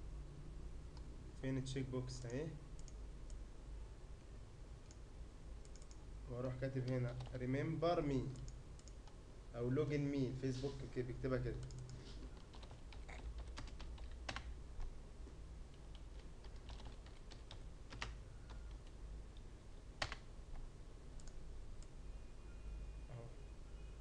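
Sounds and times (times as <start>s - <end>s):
typing on computer keyboard: 5.6s - 6.0s, 11.6s - 14.5s, 15.8s - 19.0s, 20.0s - 20.2s.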